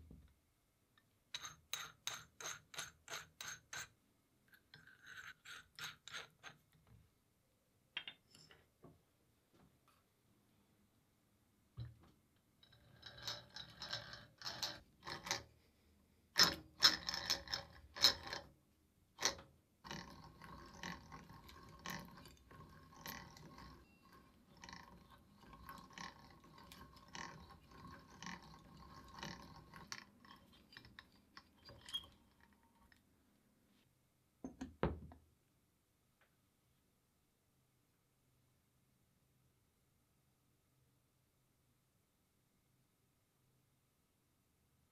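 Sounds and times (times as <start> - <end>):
hand drill gears rattling whir: 16.4 - 18.5, 19.2 - 33.0
knock: 34.4 - 35.2.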